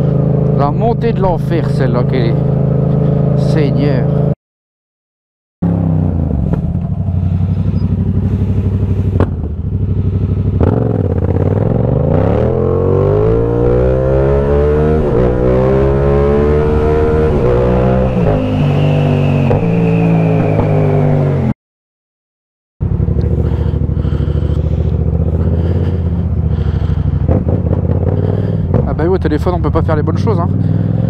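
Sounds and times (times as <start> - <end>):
motorcycle engine running: 5.6 - 20.9, 22.8 - 31.0.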